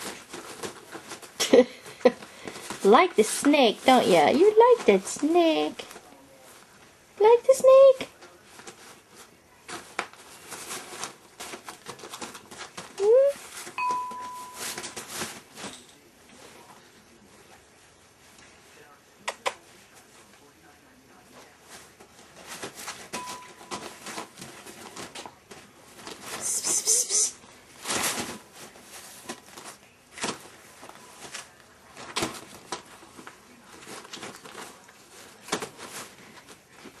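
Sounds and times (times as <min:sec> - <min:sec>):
brief steady tone: 0:13.8 - 0:15.0.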